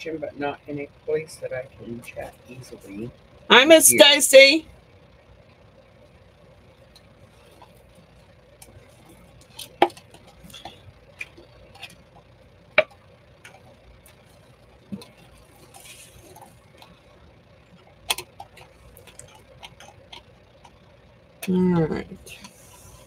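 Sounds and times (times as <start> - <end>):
cups and bottles clicking and knocking: 9.4 - 14.2, 18.1 - 20.8.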